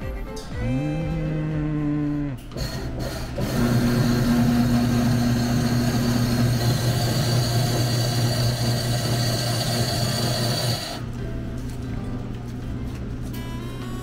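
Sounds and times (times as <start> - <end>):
ice shaving machine humming: 2.5 - 11.1.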